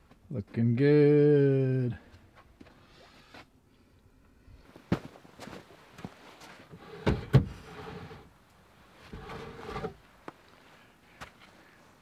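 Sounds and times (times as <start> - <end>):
wooden rack scraping slide: 6.7 - 8.3, 9.0 - 10.0.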